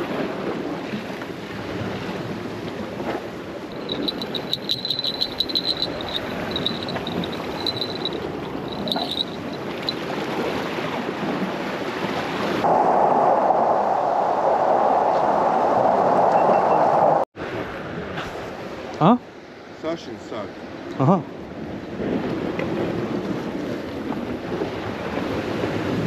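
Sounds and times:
high broken chirping: 3.8s - 9.9s.

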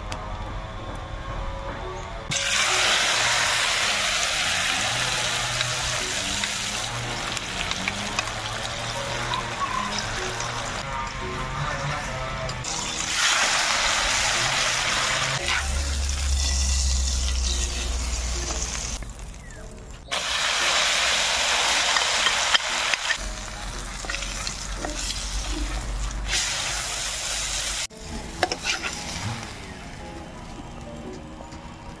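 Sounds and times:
eggplant frying in hot oil: 2.3s - 11.7s, 12.6s - 27.9s.

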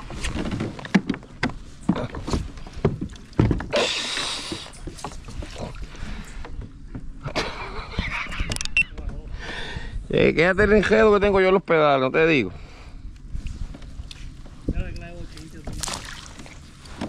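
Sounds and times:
gear knocking against kayak hull: 0.2s - 3.8s.

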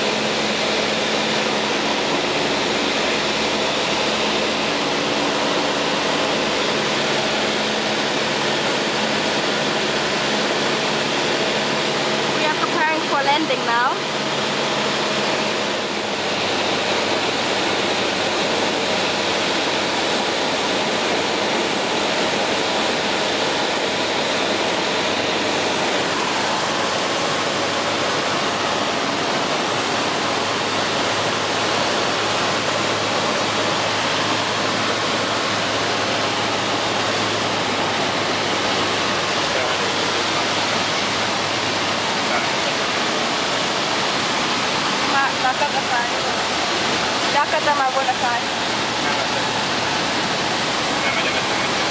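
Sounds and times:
aircraft engine drone: 0.0s - 51.9s
rushing airflow: 0.0s - 51.9s.

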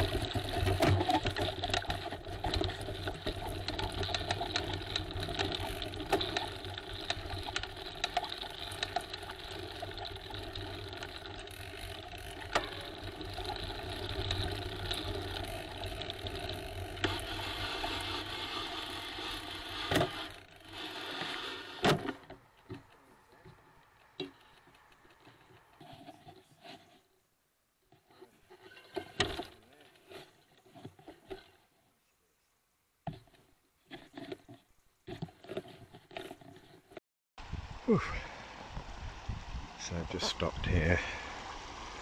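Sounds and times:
bicycle rattling and clicking: 0.0s - 23.0s, 23.8s - 26.2s, 35.1s - 37.0s.

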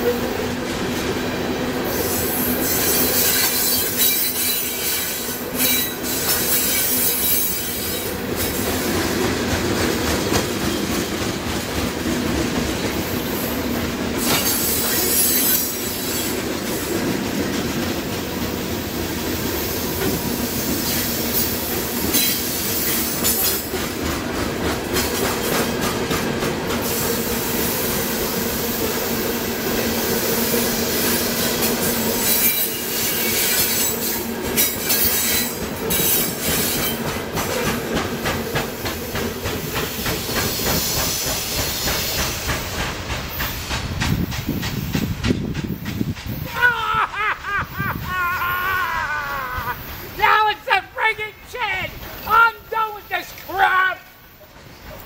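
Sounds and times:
wheels squealing on rails: 0.0s - 9.3s, 12.6s - 24.0s, 26.7s - 46.7s, 47.6s - 50.4s
freight train rolling past: 0.0s - 55.0s.

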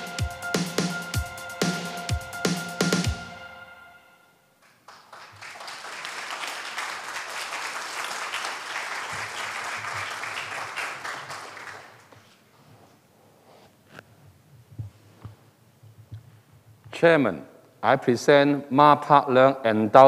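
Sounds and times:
audience applause: 4.7s - 12.1s.

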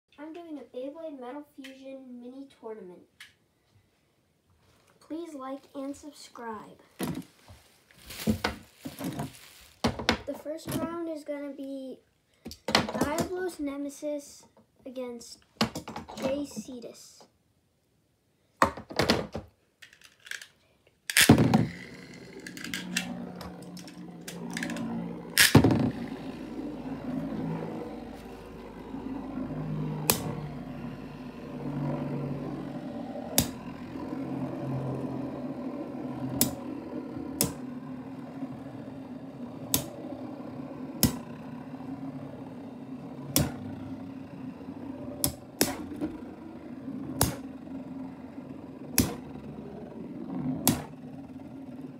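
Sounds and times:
spinning tops clacking together: 21.1s - 23.1s
whirring hum of spinning tops: 21.1s - 51.9s.

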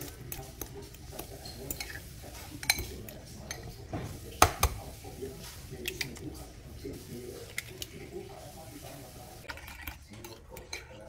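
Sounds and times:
fork beating against bowl: 0.0s - 3.8s, 4.4s - 4.8s.

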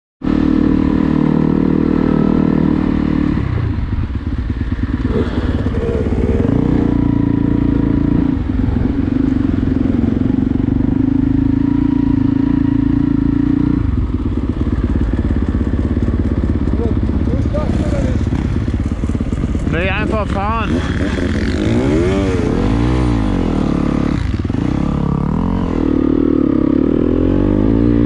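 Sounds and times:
motocross bike engine revving: 0.2s - 28.0s.

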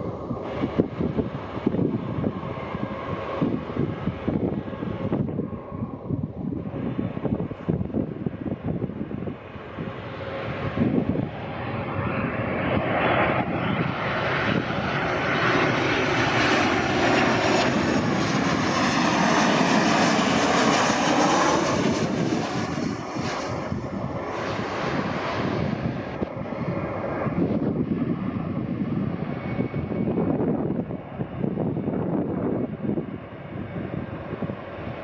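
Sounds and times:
jet engines passing overhead: 0.0s - 35.0s
wind rumble on microphone: 0.0s - 35.0s.

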